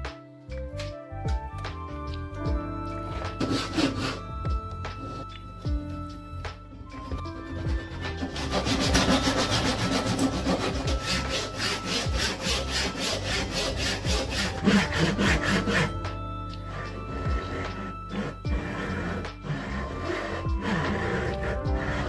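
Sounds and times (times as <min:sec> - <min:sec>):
hand saw cutting wood: 0:03.1 - 0:05.4, 0:06.9 - 0:16.0, 0:16.7 - 0:22.0.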